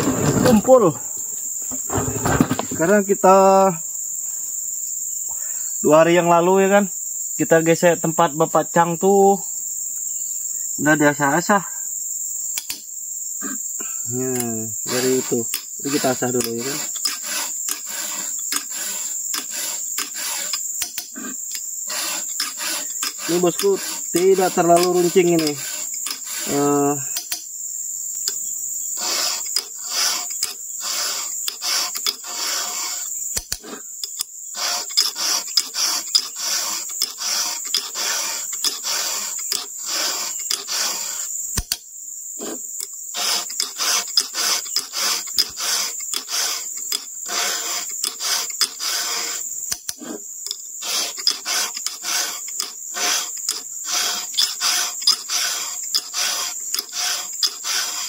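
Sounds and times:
file rasping on chainsaw chain: 0.0 - 1.0, 1.7 - 3.1, 13.4 - 27.4, 28.3 - 41.8, 42.4 - 58.0
insect chirring: 0.0 - 58.0.

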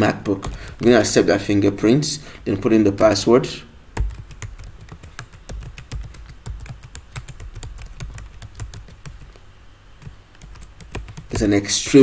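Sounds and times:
keyboard typing clicks: 4.0 - 9.4, 10.0 - 11.5.

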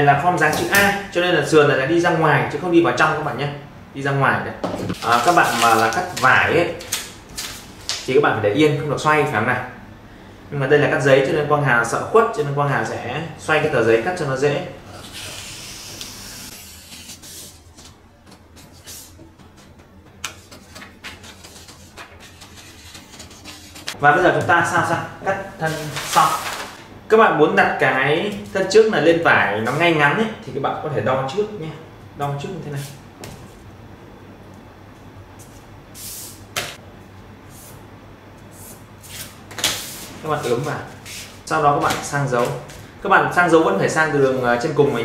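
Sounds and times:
paper rustling: 4.9 - 8.1, 16.5 - 24.0, 25.6 - 26.8
scissors cutting paper: 15.0 - 24.0.

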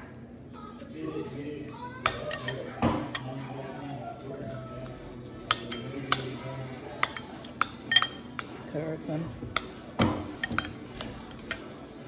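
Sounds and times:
cutlery clinking against dishes: 2.0 - 3.4, 5.4 - 8.6, 9.5 - 11.9.

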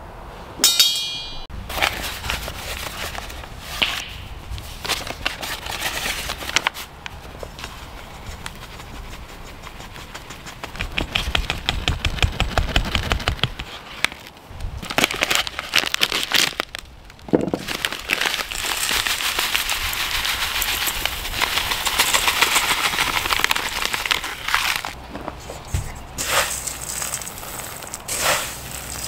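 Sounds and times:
bag crinkling: 14.2 - 25.0.

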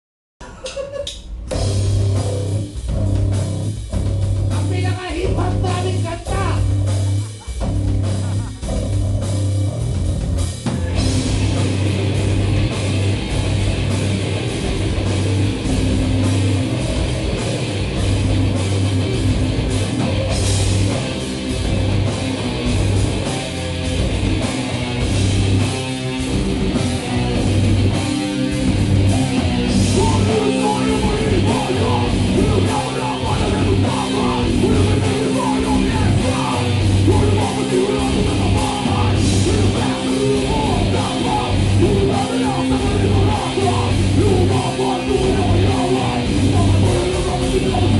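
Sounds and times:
metal band playing live: 1.2 - 47.9.

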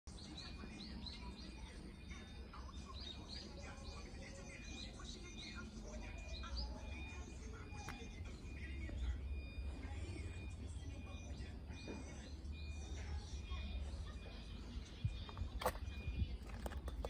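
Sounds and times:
small birds chirping: 0.1 - 17.0.

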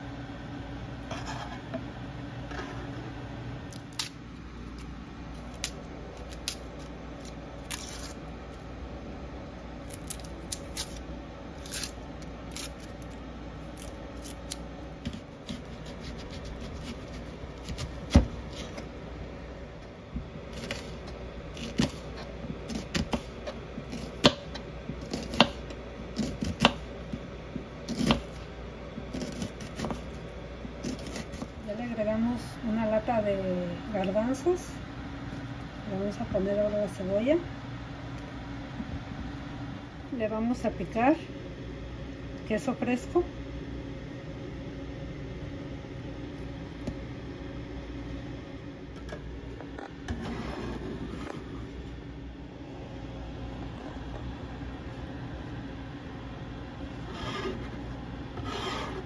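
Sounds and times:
knife chopping on cutting board: 15.1 - 18.7, 22.7 - 26.8.

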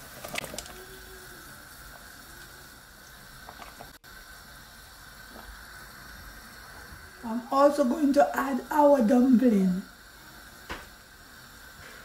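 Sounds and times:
soup simmering and bubbling: 0.0 - 8.0.

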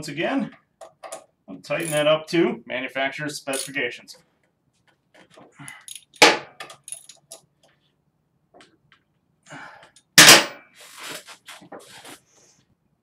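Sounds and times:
sharp metal knocks: 10.2 - 10.6.

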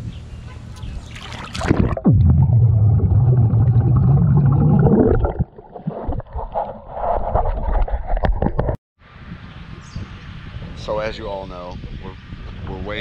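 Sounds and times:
camera splashing into water: 1.1 - 2.1
water splashing and dripping: 1.1 - 6.6
man spitting water: 1.2 - 6.5
man blowing bubbles underwater: 1.4 - 8.6.

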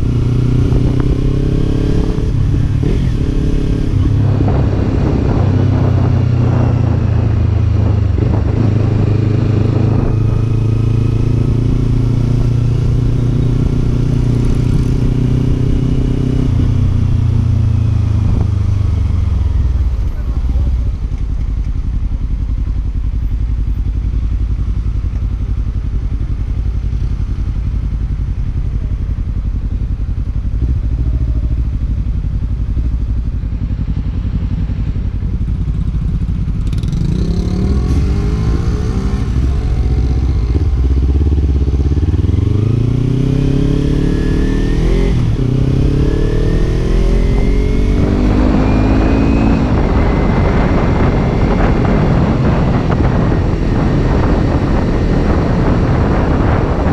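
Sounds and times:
motorcycle engine idling and revving: 0.0 - 56.9
wind rushing: 1.6 - 12.6, 37.2 - 56.9.

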